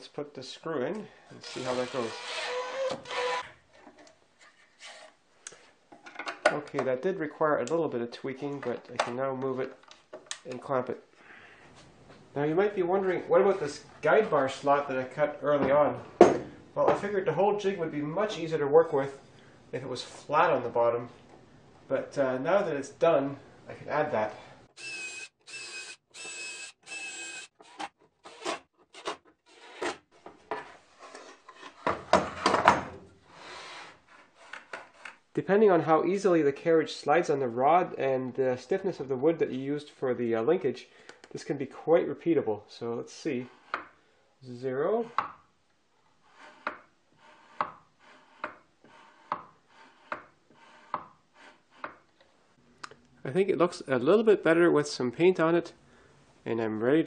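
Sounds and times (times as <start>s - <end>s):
jig carriage rubbing on rod: 46.2s - 52.0s.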